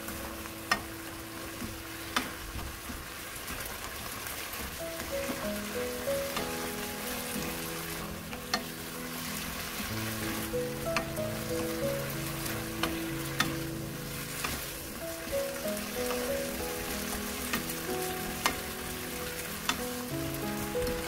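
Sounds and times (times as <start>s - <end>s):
food sizzling in a wok: 0.0s - 21.0s
background music: 4.7s - 21.0s.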